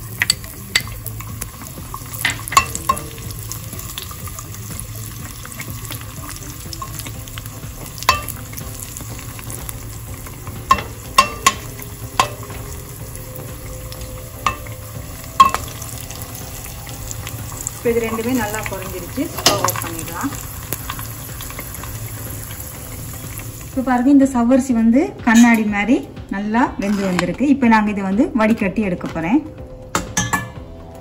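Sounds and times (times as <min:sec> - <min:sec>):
nuts frying in a pan: 0:00.0 - 0:29.4
metal spatula scraping a pan: 0:26.8 - 0:27.3.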